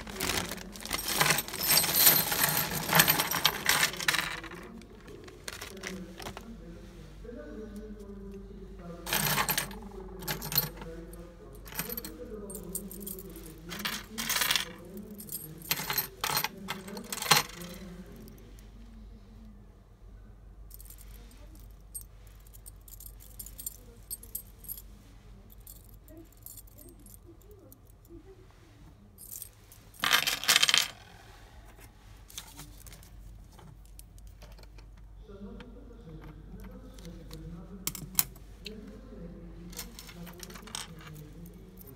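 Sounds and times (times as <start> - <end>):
keys clattering on wooden table: 0.0 - 4.7, 9.1 - 18.0, 29.2 - 31.0, 32.3 - 35.0, 39.7 - 41.9
light taps and handling noise: 0.0 - 6.6, 31.7 - 39.0.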